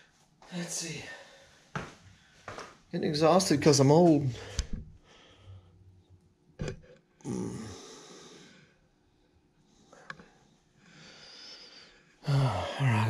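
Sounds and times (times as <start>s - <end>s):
man sighing: 7.2s - 8.2s, 12.2s - 13.0s.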